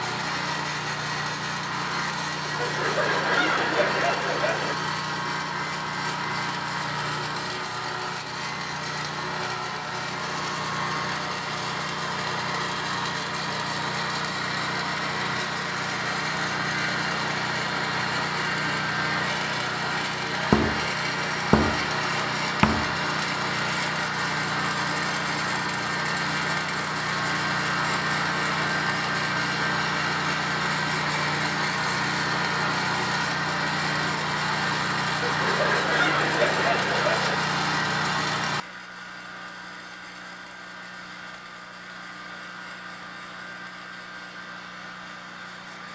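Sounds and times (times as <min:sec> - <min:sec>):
sharp knocks: 0:20.5 - 0:23.2.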